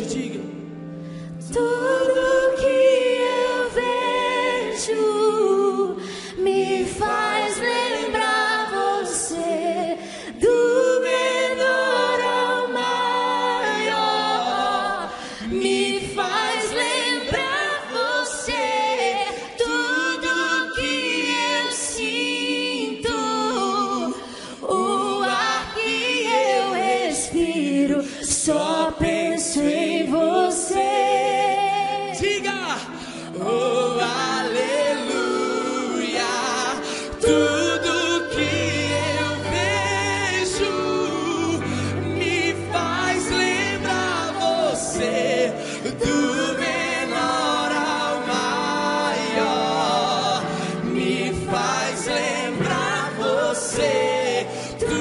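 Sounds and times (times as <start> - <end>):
choir of voices singing along: 0.0 - 55.0
woman singing a cappella: 14.9 - 32.6.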